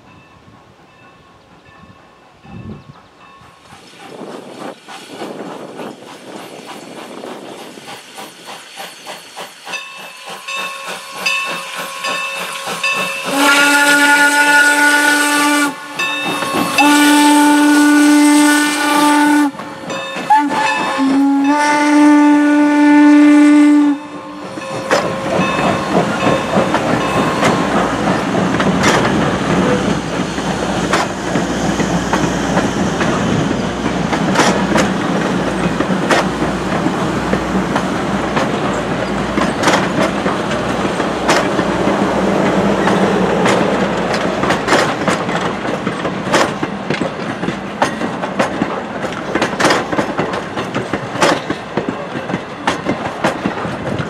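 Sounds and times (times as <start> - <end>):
train coaches rumbling past: 0.0 - 54.0
steam locomotive exhaust beats: 0.8 - 54.0
clickety-clack of train wheels: 1.0 - 54.0
steam whistle blasts: 13.1 - 25.7.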